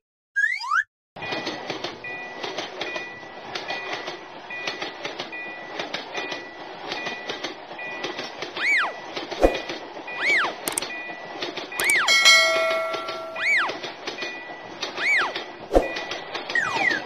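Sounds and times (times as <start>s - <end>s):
cartoon train rumble and clatter: 1.2s - 17.0s
short high tone: 11.8s - 13.7s.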